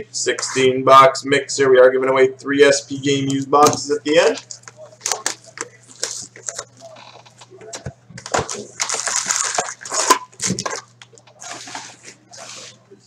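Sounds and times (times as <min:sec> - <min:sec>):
foil wrapper crinkling and tearing: 0:04.4 - 0:07.4, 0:08.3 - 0:11.8.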